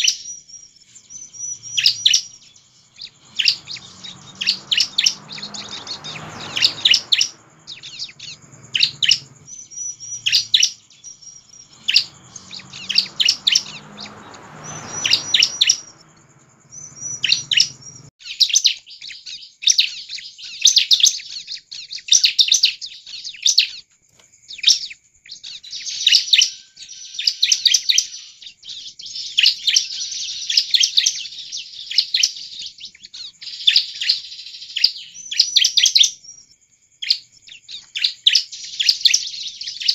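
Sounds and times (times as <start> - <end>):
bird singing sharp chirps: 0.0 - 39.9.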